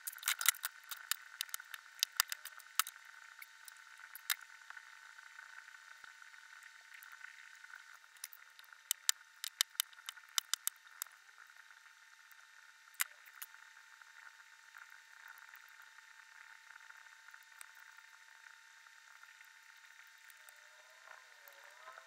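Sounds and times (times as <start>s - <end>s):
plastic parts clicking together: 0.0s - 2.9s, 8.9s - 11.1s.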